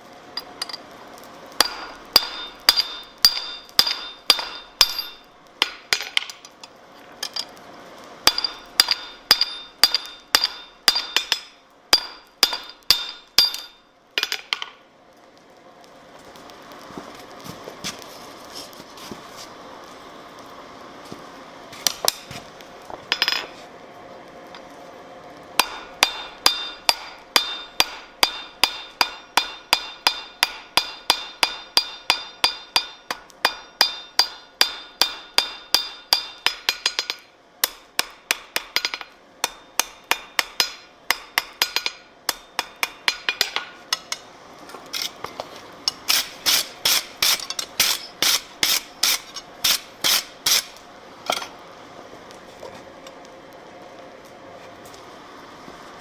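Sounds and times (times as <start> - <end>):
hammer ringing on anvil: 1.6 - 5.8, 8.3 - 14.4, 25.6 - 37.2.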